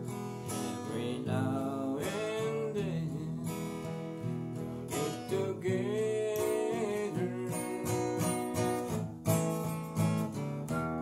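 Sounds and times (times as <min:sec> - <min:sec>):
acoustic guitar strumming: 0:00.0 - 0:11.0
man singing: 0:00.5 - 0:08.5.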